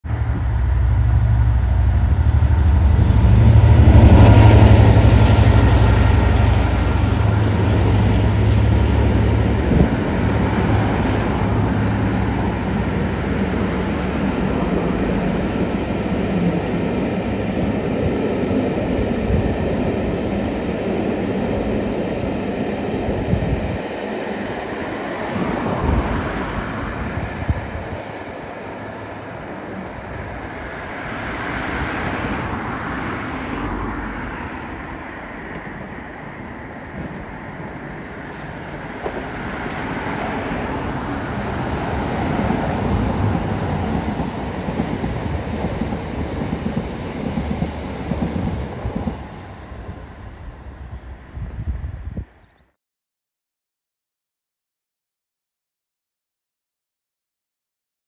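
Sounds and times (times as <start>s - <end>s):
diesel locomotive engine: 0.0s - 52.2s
train wheels clattering on rails: 38.7s - 50.1s.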